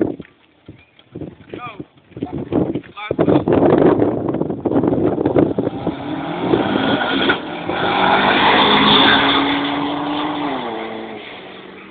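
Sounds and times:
car accelerating past: 5.4 - 11.9.

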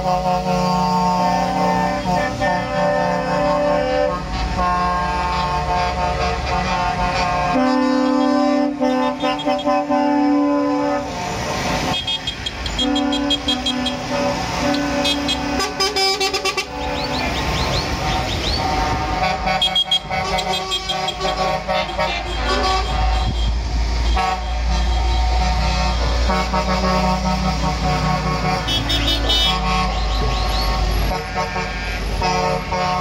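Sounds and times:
vehicle horns honking: 0.0 - 33.0
vehicles passing: 0.0 - 33.0.

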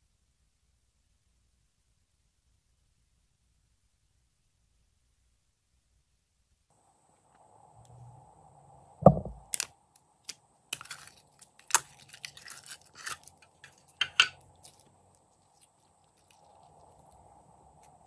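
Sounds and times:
dull knock: 9.0 - 9.4.

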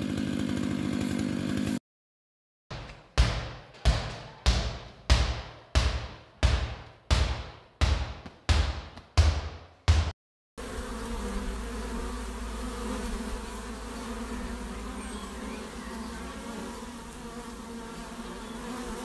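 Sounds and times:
bees buzzing: 10.6 - 19.0.

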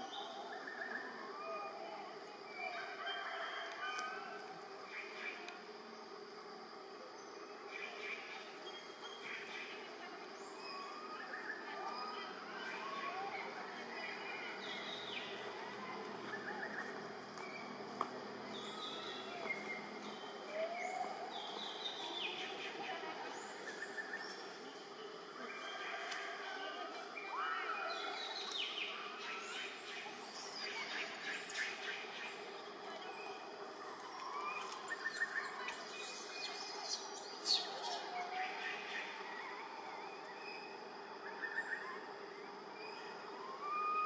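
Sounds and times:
faint background hum: 0.0 - 44.0
birds chirping and whistling: 34.4 - 38.1.

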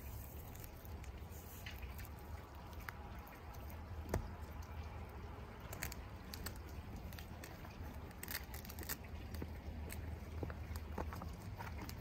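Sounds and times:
fabric rustling and taps: 8.2 - 12.0.

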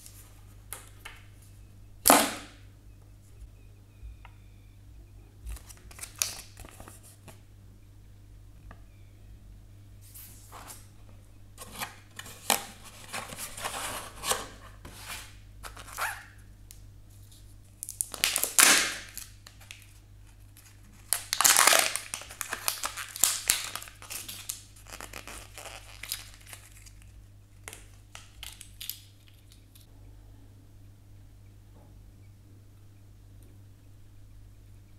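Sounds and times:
plastic wrap crinkling and tearing: 5.5 - 7.1, 17.8 - 29.8.

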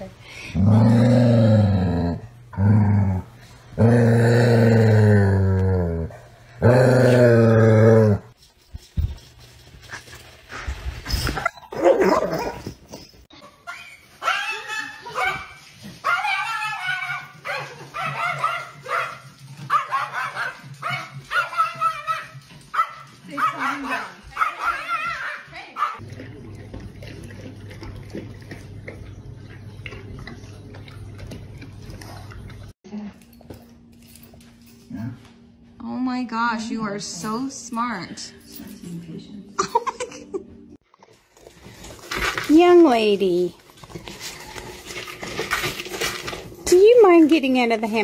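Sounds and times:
dog growling: 0.4 - 8.4.

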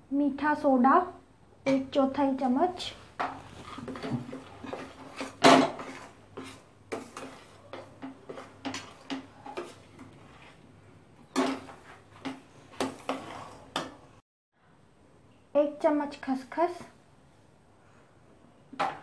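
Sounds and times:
metal spatula scraping pan: 3.2 - 10.7, 11.3 - 14.0.

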